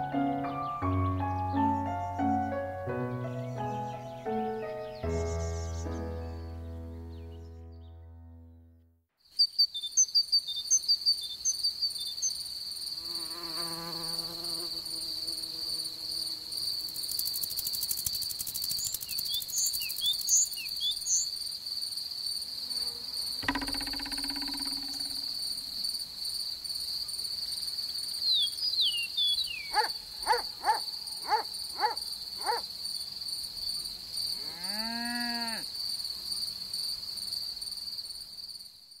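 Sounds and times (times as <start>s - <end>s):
bird chirps: 0.4s - 8.1s, 9.3s - 12.4s, 18.6s - 21.4s, 23.4s - 25.4s, 28.2s - 32.6s
crickets trilling: 9.3s - 38.8s
thump: 23.4s - 25.3s
quick falling chirps: 23.4s - 25.7s.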